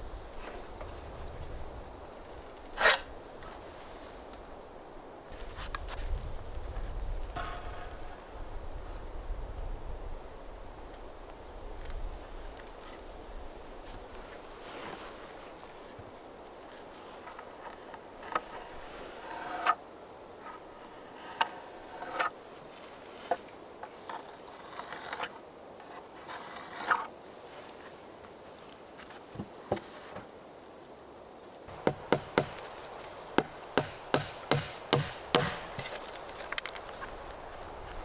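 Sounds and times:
hammer driving nails: 31.7 - 32.8, 33.4 - 36.7.

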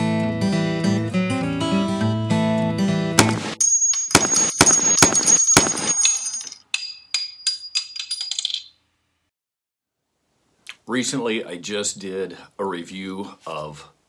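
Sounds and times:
gunshots: 3.2 - 6.0
metallic pings: 3.6 - 8.4.

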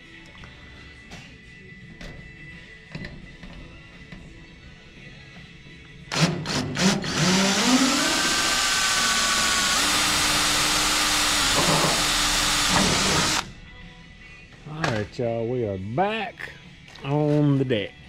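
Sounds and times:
cordless drill drilling: 6.1 - 13.5.

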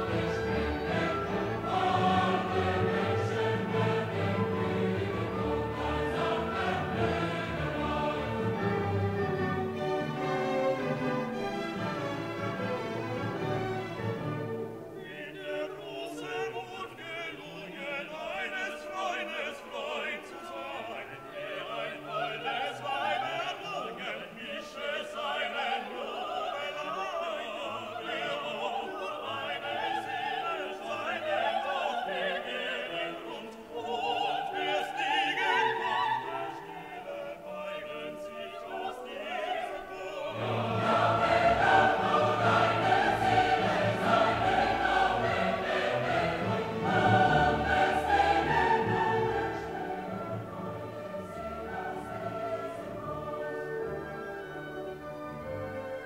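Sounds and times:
people singing: 0.0 - 10.2, 15.0 - 54.6
orchestra playing: 0.0 - 17.3, 38.4 - 56.0.

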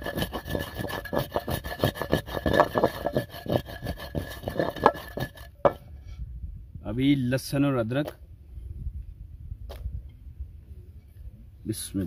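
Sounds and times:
wooden pestle grinding in clay mortar: 0.0 - 5.8.

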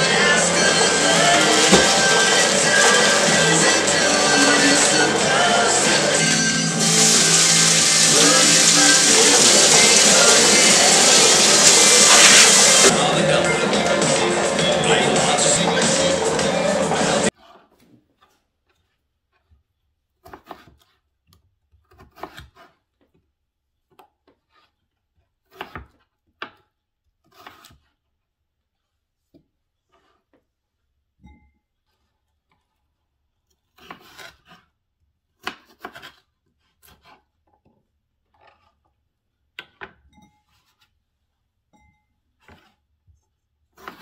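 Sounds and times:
knife cutting on wooden board: 20.2 - 21.1, 21.7 - 22.9, 25.4 - 26.6, 27.2 - 28.0, 33.5 - 34.8, 35.4 - 37.4, 43.7 - 44.0.

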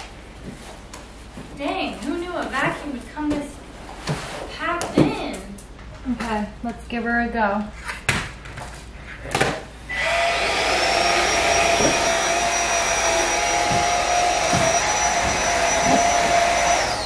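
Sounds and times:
vacuum motor whine: 9.9 - 17.0
vacuum suction rush: 10.0 - 17.0.

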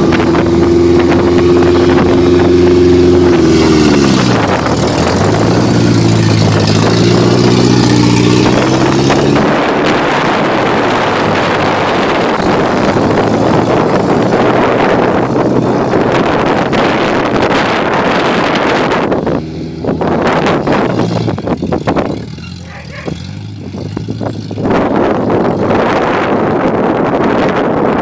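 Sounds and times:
pickup engine revving: 0.0 - 28.0
wind buffeting microphone: 0.0 - 28.0.

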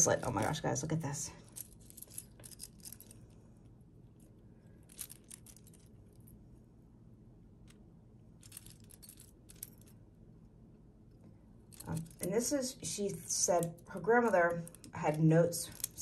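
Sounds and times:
metal bracelet jingling: 1.5 - 3.2, 8.4 - 10.0, 11.7 - 16.0.

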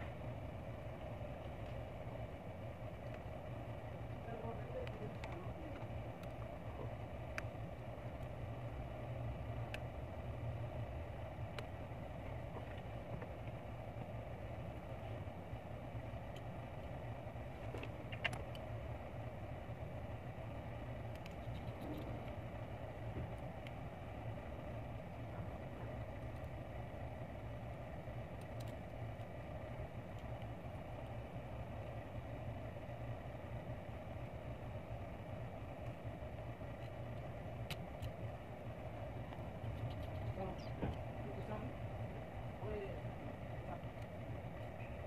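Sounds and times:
low background hum: 0.0 - 45.0.

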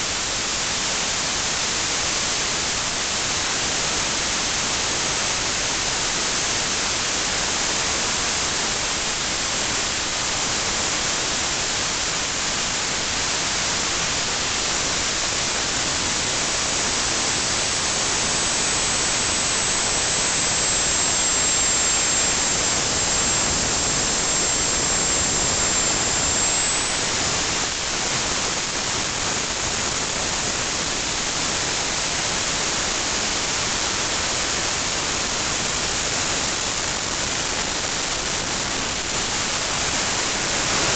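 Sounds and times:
thin high whine: 7.8 - 37.3, 38.5 - 40.9
gas turbine roaring: 15.5 - 28.1.

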